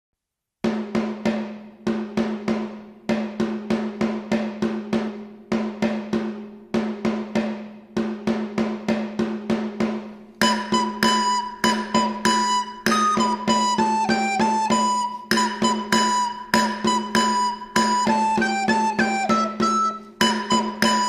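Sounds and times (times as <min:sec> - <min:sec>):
pitched drum beating: 0:00.6 - 0:21.0
high melody instrument: 0:10.4 - 0:21.0.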